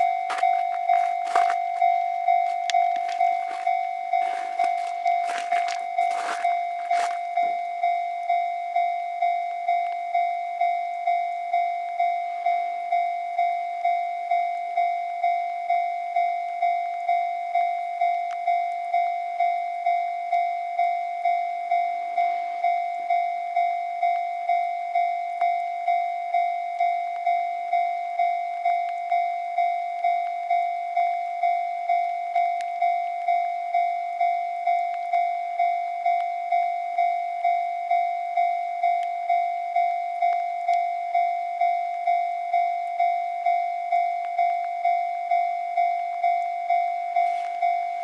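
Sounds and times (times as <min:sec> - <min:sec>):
level crossing bell clanging: 0:00.0 - 0:13.4, 0:33.4 - 0:48.0.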